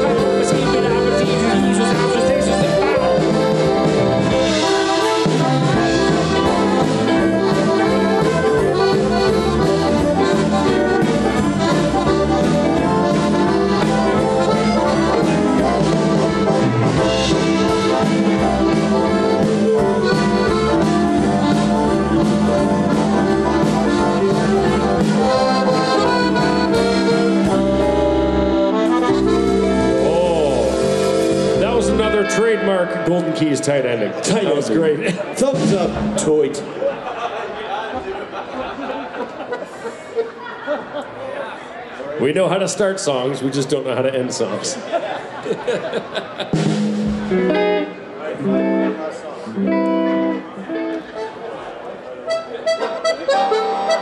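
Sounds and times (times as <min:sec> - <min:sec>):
accordions playing: 0:00.0 - 0:36.3, 0:39.4 - 0:40.6, 0:46.2 - 0:54.0
folk band playing instrumental: 0:00.0 - 0:37.2, 0:37.9 - 0:41.2, 0:45.3 - 0:54.0.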